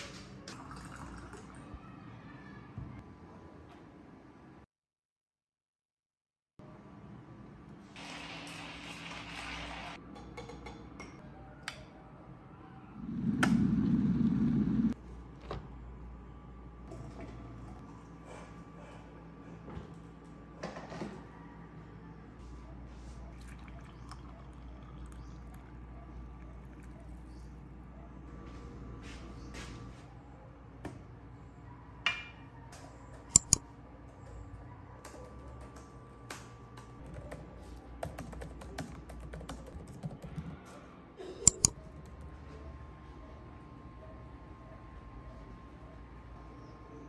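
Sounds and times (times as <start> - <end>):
coffee trickling into mug: 23.3 - 25.8
laptop keyboard typing: 33.3 - 33.6, 37.0 - 40.6, 41.4 - 42.4.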